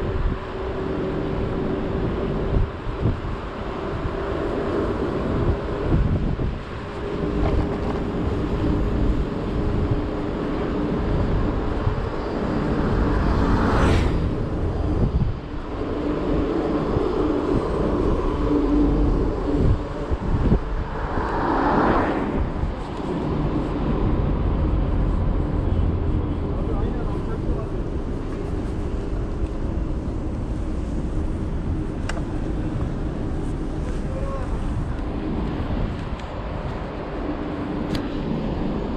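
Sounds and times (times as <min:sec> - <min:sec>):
scooter road noise with low hum: 0:00.0 - 0:38.9
wind rumble on microphone: 0:00.0 - 0:38.9
whoosh: 0:13.0 - 0:15.3, 0:17.4 - 0:24.4.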